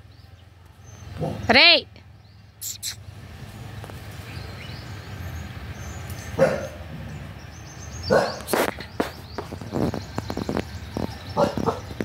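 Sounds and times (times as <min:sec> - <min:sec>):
dog barking: 0:01.2 - 0:01.5, 0:06.4 - 0:06.9, 0:08.1 - 0:08.5, 0:11.4 - 0:11.9.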